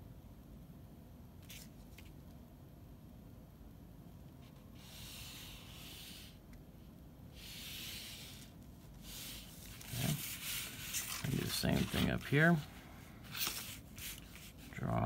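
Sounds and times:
ruler sliding across paper: 4.4s - 6.4s, 7.4s - 12.3s.

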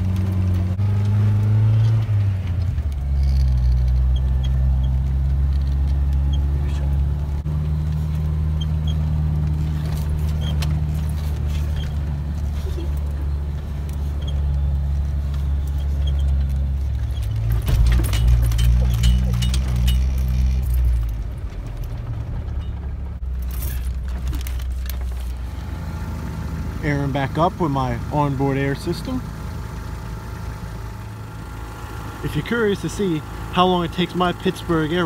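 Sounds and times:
vehicle engine droning: 0.0s - 35.0s.

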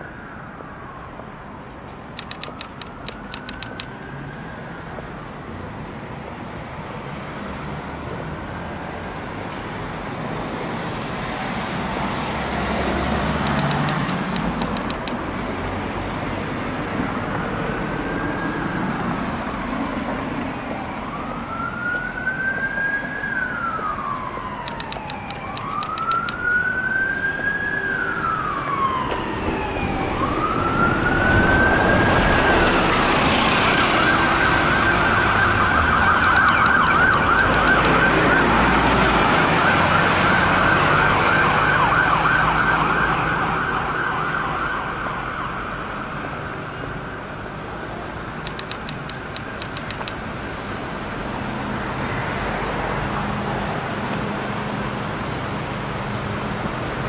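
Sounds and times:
street traffic: 0.0s - 57.0s
emergency vehicle siren: 20.6s - 24.6s, 26.5s - 33.1s, 37.8s - 45.9s.

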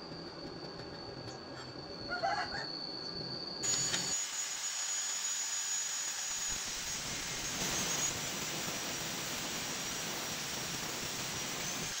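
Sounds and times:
angle grinder grinding steel: 3.6s - 12.0s.

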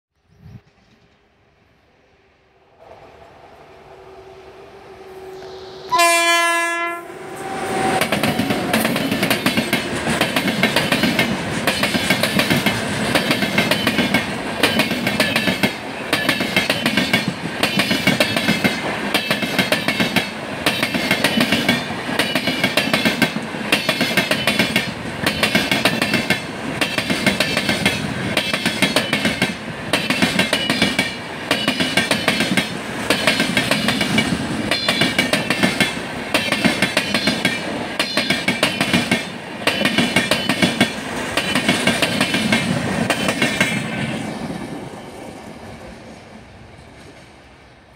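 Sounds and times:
locomotive horn blast: 4.0s - 8.6s
train wheels clickety-clack: 7.7s - 46.1s.

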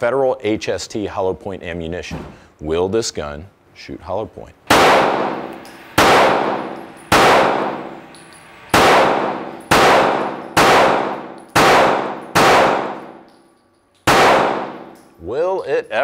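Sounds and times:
pistol shots echoing indoors: 4.7s - 15.2s.

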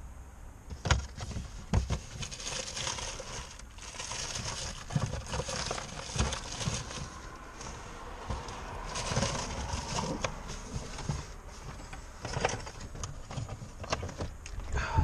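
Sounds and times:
rustling and handling noise: 0.7s - 14.8s.

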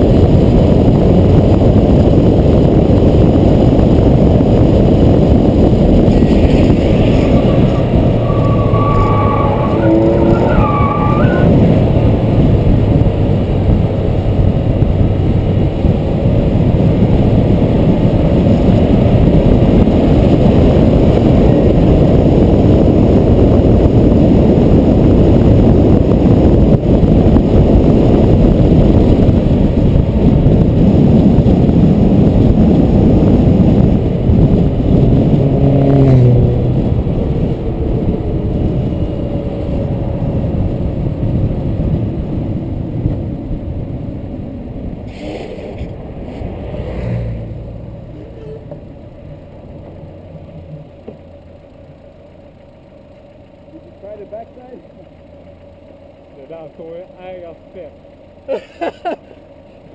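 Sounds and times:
wind and road rush: 0.0s - 59.9s
brief squeals: 6.2s - 11.9s.

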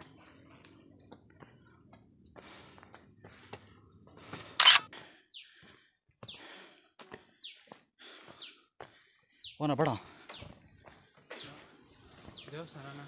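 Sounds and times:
camera handling clicks: 4.6s - 4.8s.

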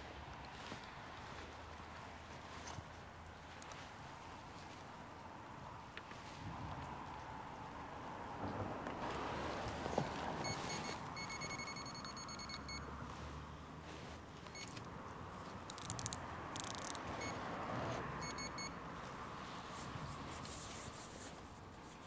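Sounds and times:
wind noise: 6.3s - 7.0s
short high electronic beeps: 10.5s - 12.8s
clusters of clicks: 15.7s - 17.1s.

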